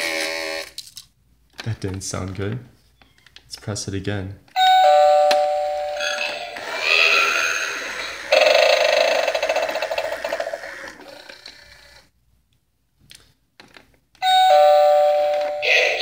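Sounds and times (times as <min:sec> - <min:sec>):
wavering doorbell chime: 0:04.6 - 0:06.6, 0:14.2 - 0:16.0.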